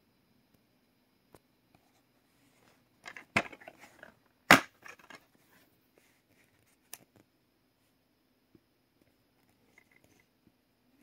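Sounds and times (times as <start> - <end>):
plastic case rustling and clicks: 3.0 - 5.3
plastic case sharp clacks: 3.1 - 5.2.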